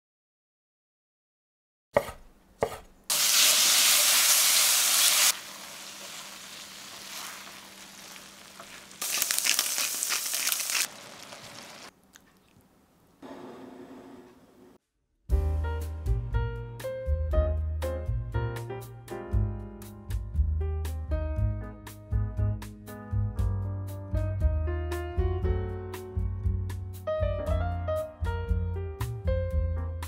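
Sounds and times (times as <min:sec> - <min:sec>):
food sizzling in frying pan: 0:03.1 - 0:11.9
spatula stirring: 0:06.8 - 0:11.9.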